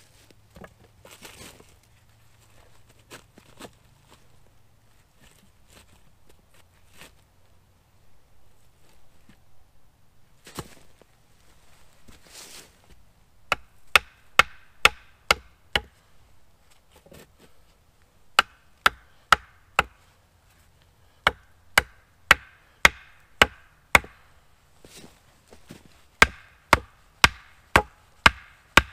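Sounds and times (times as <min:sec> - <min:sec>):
rustle: 0:00.0 - 0:28.9
axe striking wooden pole: 0:13.5 - 0:16.0, 0:18.4 - 0:20.0, 0:21.2 - 0:24.3, 0:26.2 - 0:28.9.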